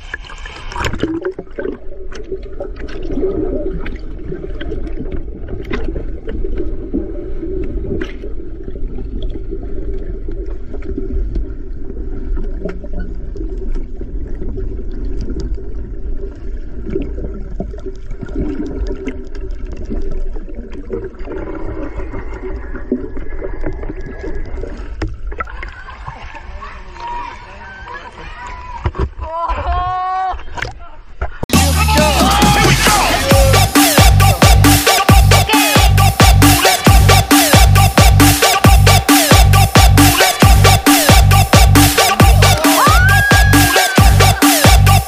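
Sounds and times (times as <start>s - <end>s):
underwater bubbling: 0.0s - 26.7s.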